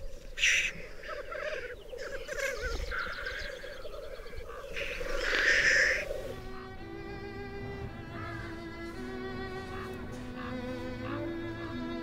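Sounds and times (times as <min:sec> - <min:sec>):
grouse bubbling song: 0:00.0 - 0:06.4
grouse hissing call: 0:00.0 - 0:07.2, 0:08.0 - 0:11.9.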